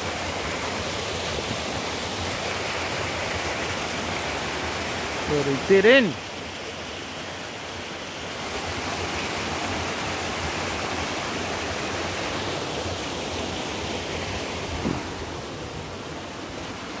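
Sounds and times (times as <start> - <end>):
water rushing over rocks: 0.0 - 17.0
brief thump: 14.8 - 15.1.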